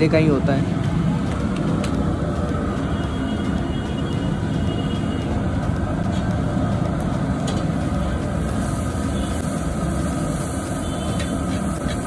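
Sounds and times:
oil sizzling: 6.0 - 12.0.

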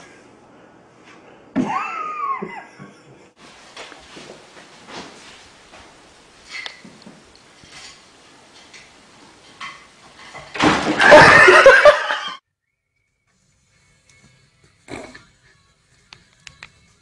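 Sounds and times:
burst of laughter: 1.6 - 3.3, 10.9 - 12.4
furniture clattering over: 7.6 - 12.2.

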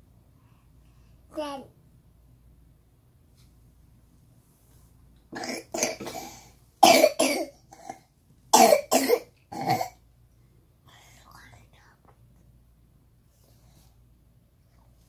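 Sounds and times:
person coughing: 5.4 - 10.0.

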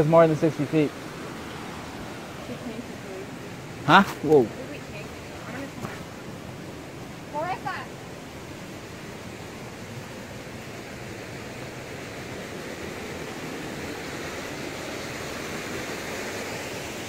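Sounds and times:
rushing flood water: 0.0 - 17.0.

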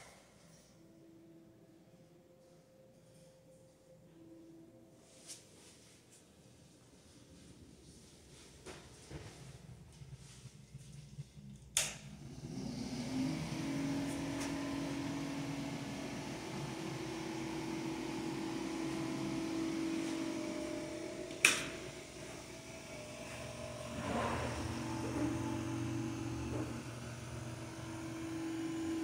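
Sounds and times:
small motor humming: 12.2 - 29.0.

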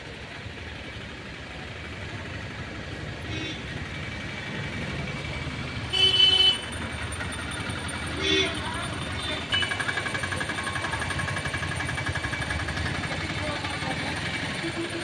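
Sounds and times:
street traffic: 0.0 - 15.0
vehicle horn honking: 5.9 - 6.8, 8.2 - 9.9.

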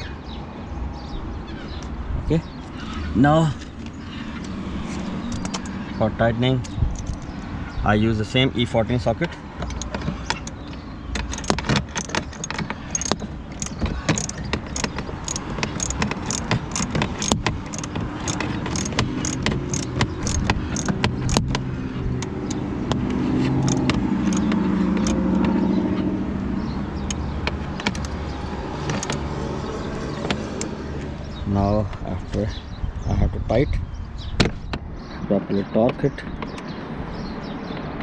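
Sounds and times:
ratchet wrench clicking: 5.3 - 5.7, 6.6 - 7.4, 9.7 - 10.6, 11.2 - 21.5, 23.6 - 25.4, 27.8 - 28.2, 28.9 - 29.2.

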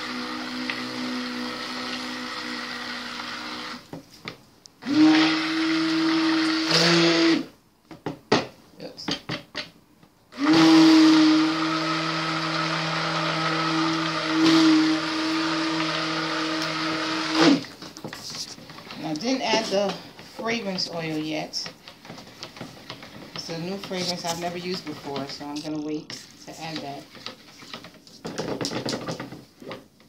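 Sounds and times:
stick blender running: 0.0 - 3.9, 4.8 - 7.5, 10.3 - 17.8.

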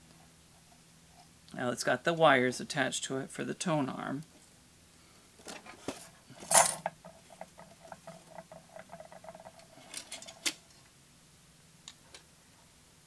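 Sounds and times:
light rapid clicks and rattles: 6.5 - 10.7.

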